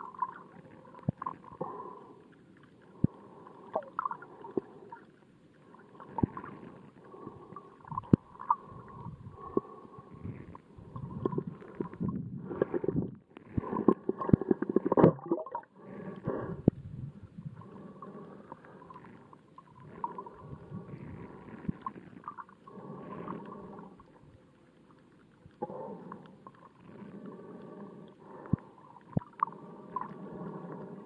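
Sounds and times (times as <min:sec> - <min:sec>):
water sloshing and gurgling underwater: 0:00.0 - 0:31.0.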